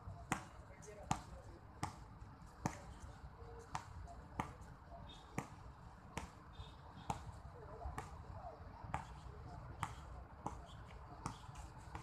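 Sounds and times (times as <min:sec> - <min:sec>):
basketball bouncing on court: 0:00.3 - 0:02.0, 0:09.8 - 0:12.0.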